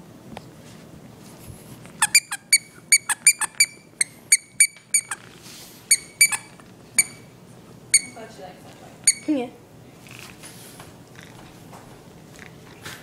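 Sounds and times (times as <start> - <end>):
puppy chewing toy: 1.8 - 7.2, 10.0 - 13.0
squeaky toy squeaks: 1.9 - 5.3, 5.9 - 7.3, 7.9 - 8.2, 9.0 - 9.3.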